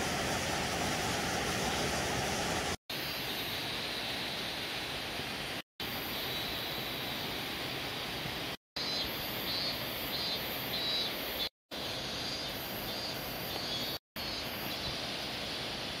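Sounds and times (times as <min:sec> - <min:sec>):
mountain stream rushing: 0:00.0 - 0:08.6
faint high chirping calls: 0:08.8 - 0:15.7.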